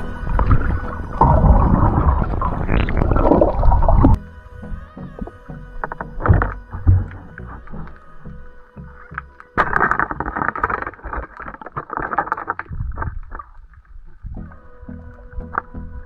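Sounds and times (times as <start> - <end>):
spear striking rock underwater: 5.2 - 8.0, 9.2 - 13.6
crackling and scraping on rock: 9.2 - 15.8.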